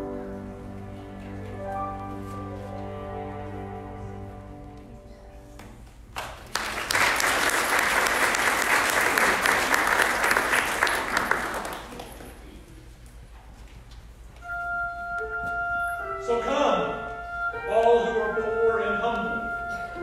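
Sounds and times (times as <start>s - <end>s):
congregation clapping: 6.1s - 12.6s.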